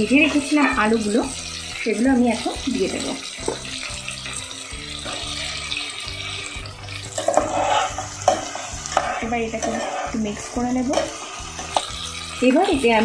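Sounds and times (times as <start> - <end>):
hot oil sizzling in a pot: 0.0 - 13.0
spatula scraping a pot: 7.0 - 12.3.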